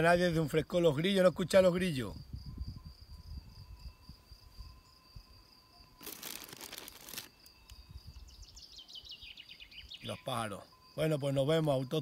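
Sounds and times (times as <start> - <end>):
crickets trilling: 0.0 - 12.0
crinkling rustle: 6.0 - 7.8
bird chirping: 7.4 - 11.0.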